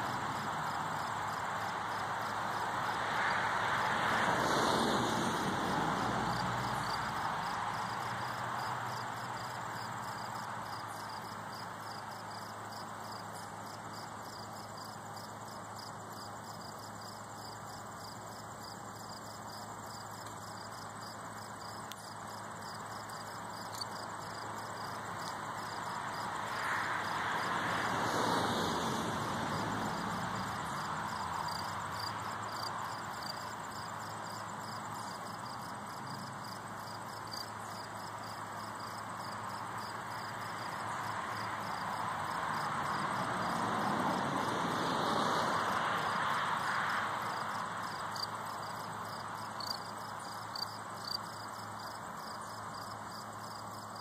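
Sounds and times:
vehicle passing: 0.0 - 13.9, 23.4 - 51.8
distant traffic hiss: 0.0 - 54.0
insects chirping: 0.0 - 54.0.

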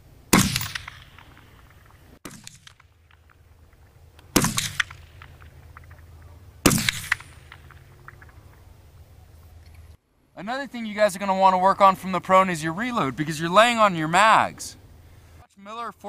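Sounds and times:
rifle shots: 0.3 - 8.3.

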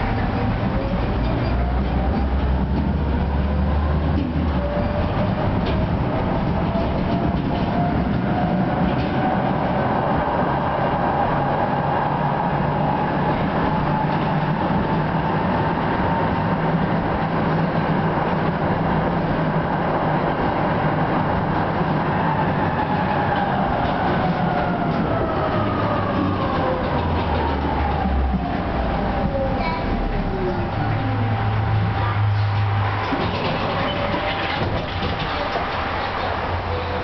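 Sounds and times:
tram motor whine: 0.0 - 37.0
tram rumbling on rails: 0.0 - 37.0.

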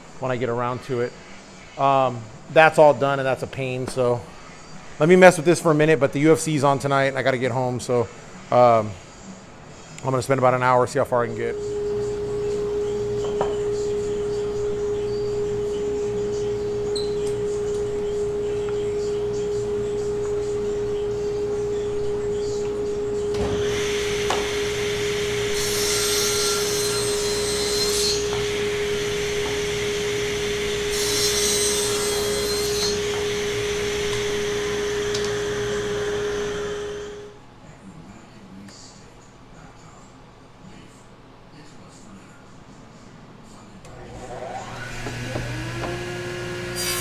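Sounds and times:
table saw whining: 11.5 - 37.3, 43.9 - 47.0
saw cutting wood: 22.8 - 37.3, 43.9 - 47.0.

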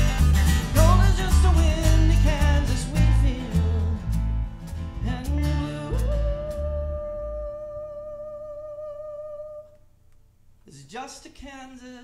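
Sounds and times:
country-folk band music: 0.0 - 7.1.

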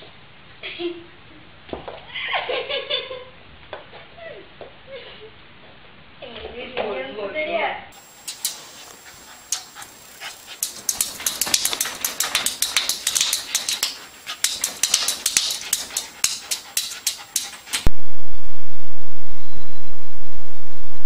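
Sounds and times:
loud steady hiss: 8.0 - 17.9
quick sharp taps and clicks: 10.6 - 17.9.

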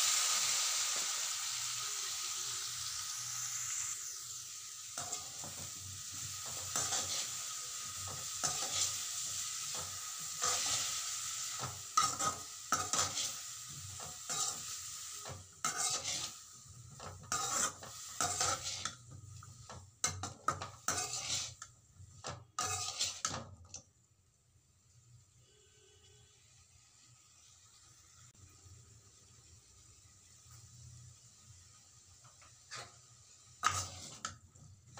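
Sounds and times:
vegetables sizzling in a pan: 0.0 - 34.9
spatula scraping a pan: 4.9 - 23.8, 32.2 - 34.9.

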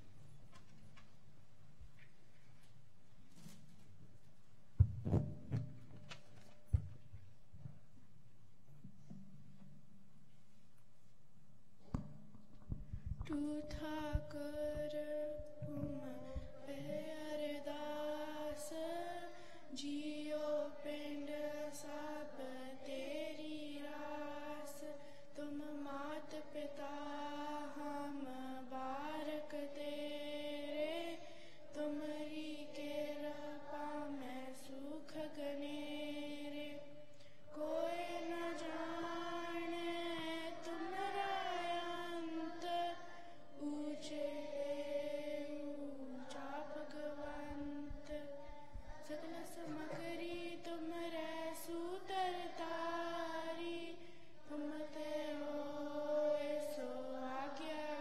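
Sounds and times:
low thumps: 11.8 - 17.4
woman chanting prayer: 13.3 - 36.9, 37.5 - 58.0.

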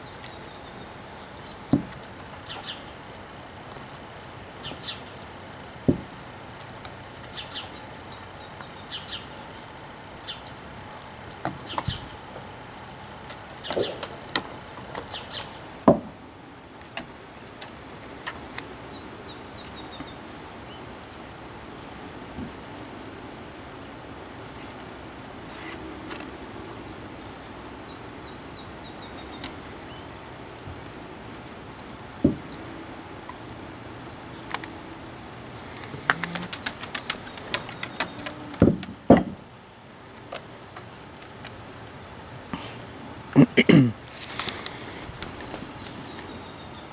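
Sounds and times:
birds chirping: 0.0 - 46.9
bone clicking and tapping on deck: 5.8 - 6.2, 32.2 - 32.6, 35.5 - 39.5
bone knocking on wooden boards: 5.9 - 6.1, 32.2 - 32.5, 36.0 - 39.4.

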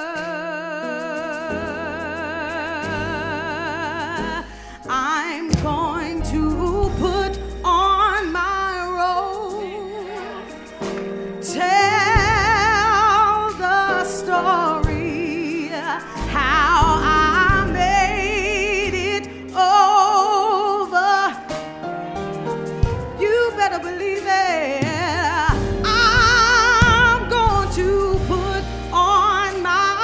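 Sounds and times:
solo singer with vibrato: 0.0 - 10.7, 11.4 - 21.5
deep bass line: 5.5 - 9.6, 16.2 - 19.2, 25.5 - 29.7.

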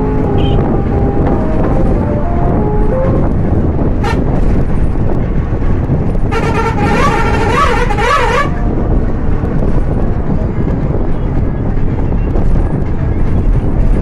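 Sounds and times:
musical vehicle horn: 0.0 - 4.6, 6.2 - 8.9
bus engine and road rumble: 0.0 - 14.0.

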